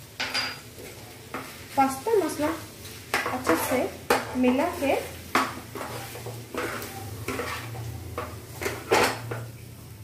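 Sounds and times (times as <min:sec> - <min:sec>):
spatula scraping frying pan: 0:00.6 - 0:09.4.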